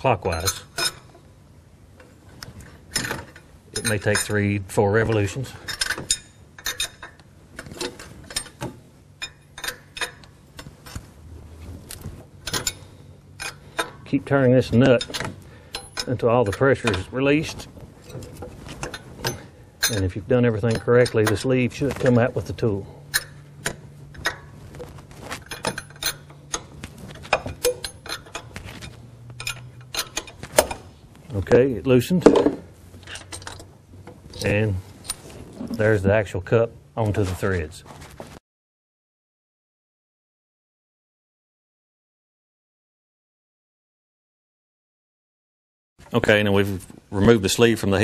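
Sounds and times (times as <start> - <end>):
wrench clicking and creaking: 5.7 - 10.7, 12.4 - 14.0, 23.1 - 24.4, 25.4 - 30.8.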